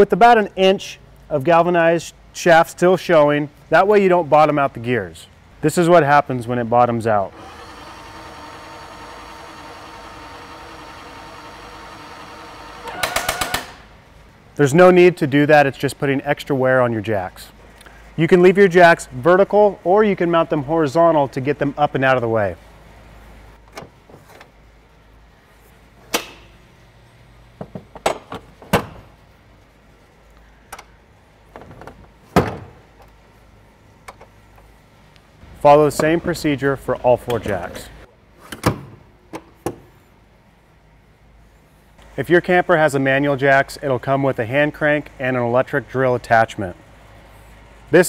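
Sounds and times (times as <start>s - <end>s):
electric jack motor running: 7.3s - 13.8s.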